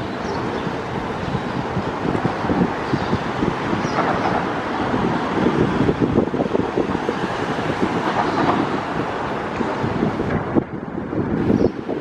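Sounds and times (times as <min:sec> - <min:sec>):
distant jet engine rumble: 0:00.0 - 0:12.0
wind buffeting microphone: 0:00.0 - 0:12.0.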